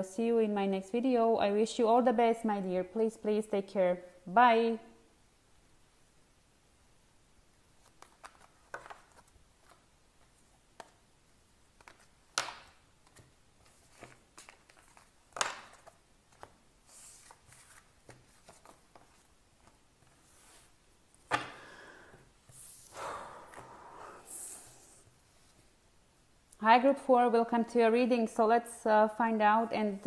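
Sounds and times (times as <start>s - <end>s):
cards clicking and sliding: 7.8s - 9.9s, 11.7s - 20.7s.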